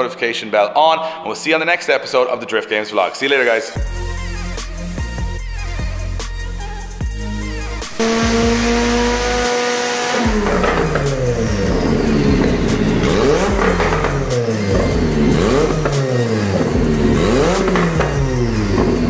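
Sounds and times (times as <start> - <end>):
car engine revving: 7.8 - 19.0
sharp exhaust cracks: 7.9 - 19.0.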